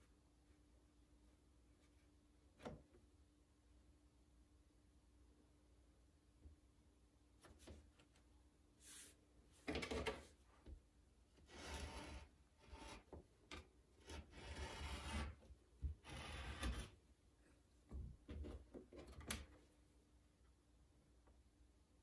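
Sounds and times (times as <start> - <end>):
faint clay scraping and rubbing: 11.4 - 19.3.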